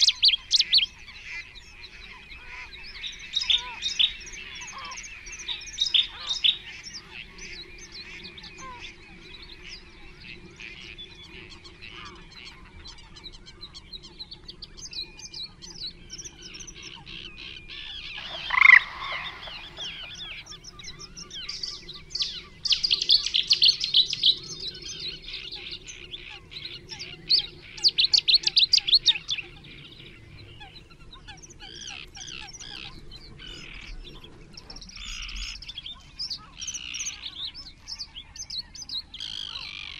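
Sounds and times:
birds singing and chirping: 0.0 - 39.9
harsh falling bird call: 18.2 - 21.6
rapid high bird trilling: 18.2 - 25.8.

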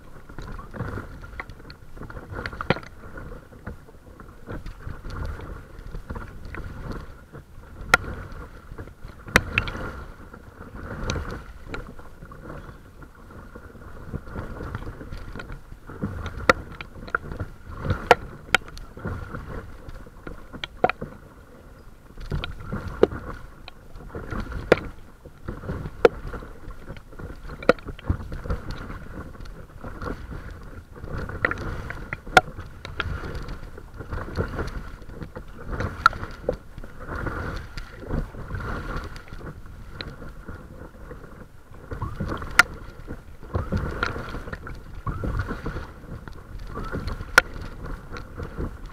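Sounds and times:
water lapping against boat hull: 0.0 - 48.9
wind noise on microphone: 0.0 - 48.9.

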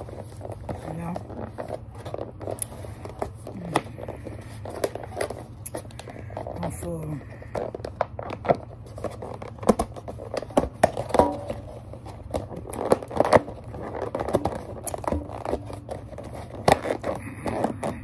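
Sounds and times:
plastic wrapping crinkling: 0.0 - 18.0.

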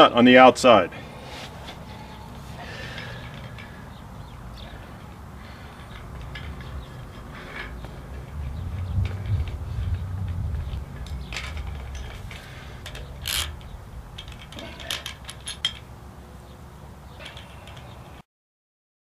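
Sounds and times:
low rumble: 1.8 - 15.8
metal nut clinking on bolt: 11.0 - 15.9.

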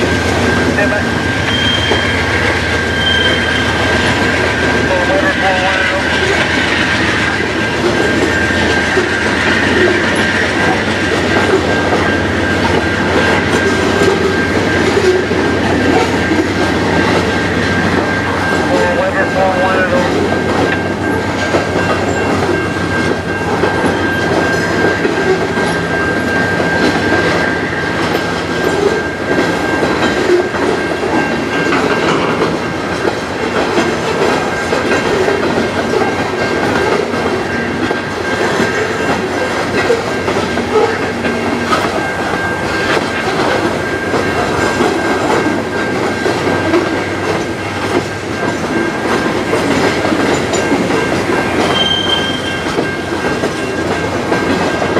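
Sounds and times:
high-pitched tone: 0.0 - 4.0
train wheels clacking over joints: 0.0 - 54.9.

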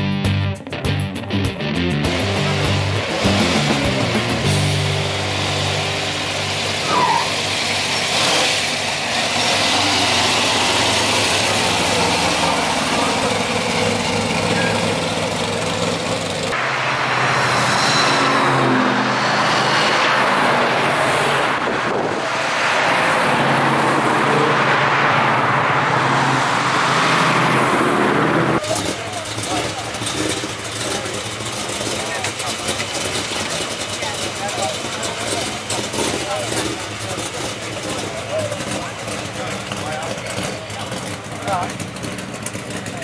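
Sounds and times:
car engine running low: 2.0 - 43.0
cars driving past: 2.2 - 43.0.

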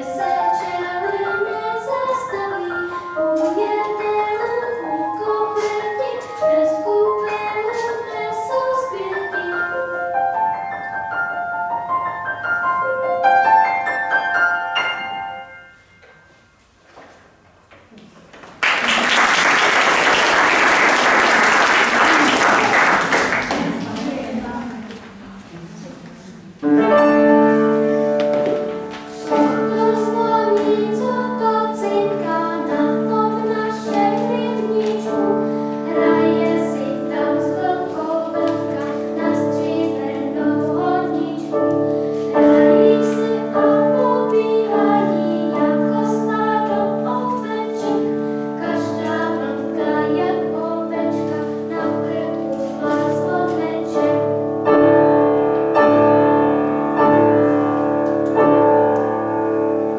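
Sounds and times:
children singing: 0.0 - 10.0, 22.0 - 54.4
upright piano: 0.0 - 16.6, 18.2 - 59.9.

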